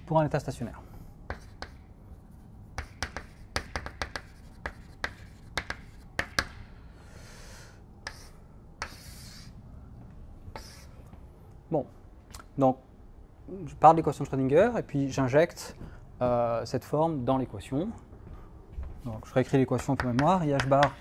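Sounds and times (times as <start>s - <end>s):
chalk tapping on blackboard: 1.3s - 1.9s, 2.7s - 6.6s, 8.0s - 9.5s, 10.5s - 10.9s, 19.8s - 21.0s
chalk scratching on blackboard: 1.3s - 6.5s, 8.0s - 9.6s, 10.5s - 11.0s.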